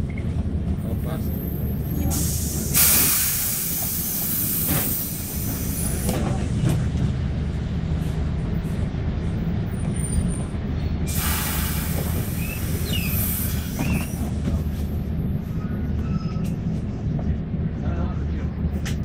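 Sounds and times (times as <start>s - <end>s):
bus engine rumbling: 0.0s - 19.0s
compressed air hiss: 2.1s - 5.9s, 11.1s - 13.8s.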